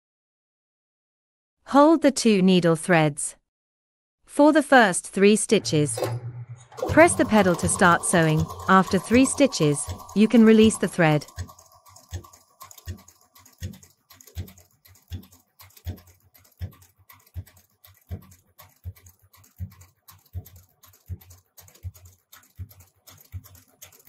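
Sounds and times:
sewing machine stitching leather: 0:06.6 - 0:24.0.

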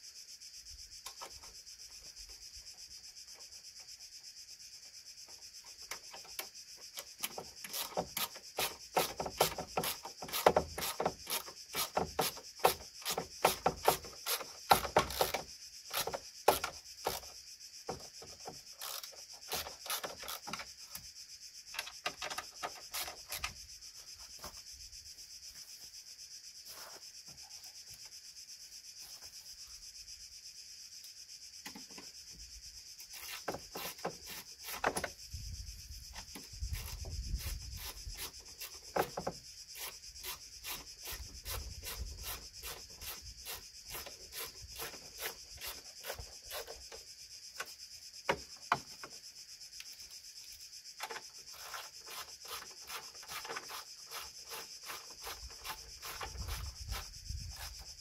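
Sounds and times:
ratchet wrench clicking: 0:18.8 - 0:20.4.

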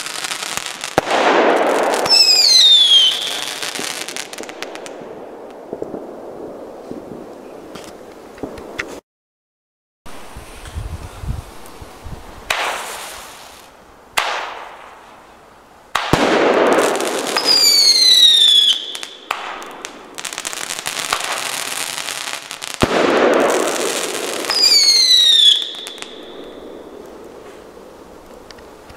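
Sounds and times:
fireworks cracking: 0:00.0 - 0:09.0, 0:12.4 - 0:15.1, 0:15.9 - 0:28.9
rushing hiss: 0:12.5 - 0:13.8.

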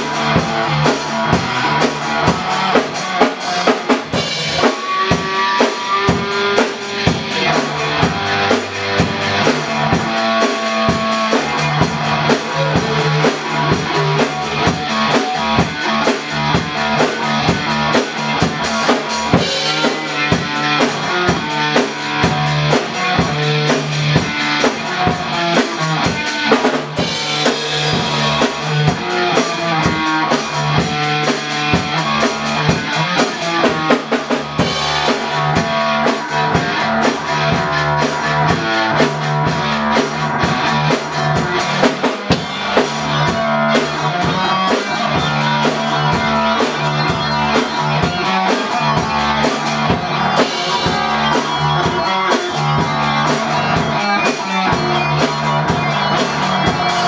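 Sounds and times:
bass guitar: 0:00.0 - 0:57.0
drums: 0:00.0 - 0:57.0
electric guitar: 0:00.0 - 0:57.0.

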